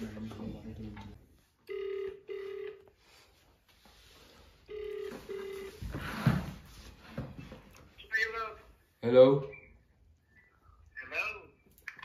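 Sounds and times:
phone ringback tone: 1.7 - 3.0, 4.7 - 6.0.

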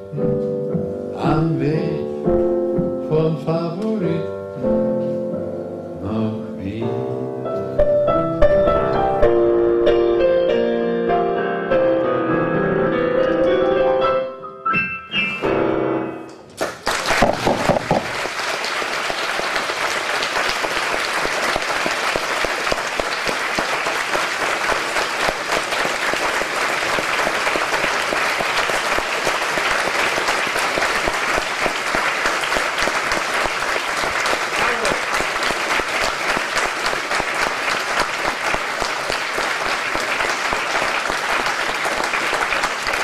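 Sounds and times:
piano chords: 0.0 - 16.6
audience applauding: 16.5 - 43.0.

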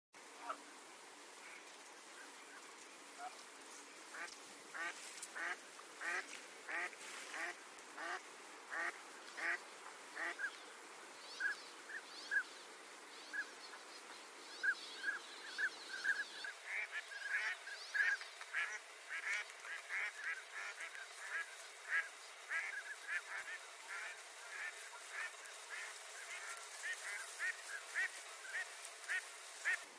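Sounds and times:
low background noise: 0.2 - 29.9
waterfowl calling: 4.1 - 10.6, 14.6 - 29.9.

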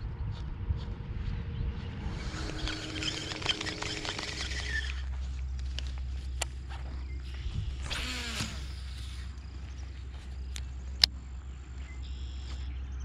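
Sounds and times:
wind rumble on microphone: 0.0 - 12.1
footsteps on gravel: 1.7 - 12.8
bird call gliding downward: 2.0 - 5.1.

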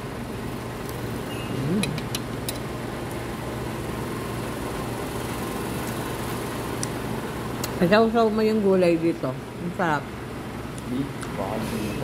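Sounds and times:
room tone hum and hiss: 0.0 - 12.0.

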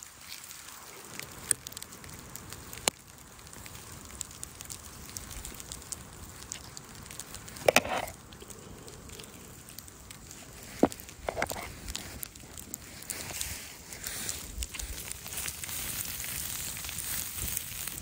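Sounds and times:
campfire crackling and popping: 0.0 - 18.0.

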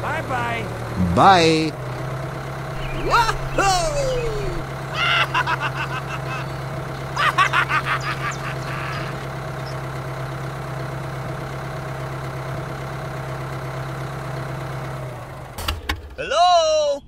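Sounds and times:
rapid quacking chatter: 2.8 - 9.3
toy tractor engine drone: 2.8 - 11.0.

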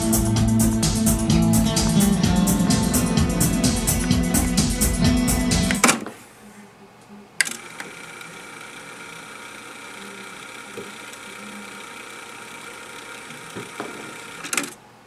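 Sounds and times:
tape rewinding whir: 7.4 - 14.8.

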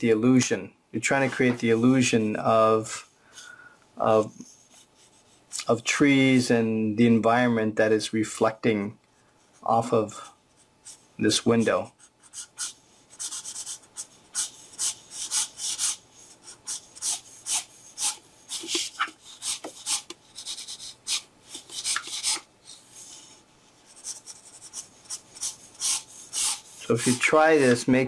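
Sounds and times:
marker scratching on paper: 10.5 - 27.8.

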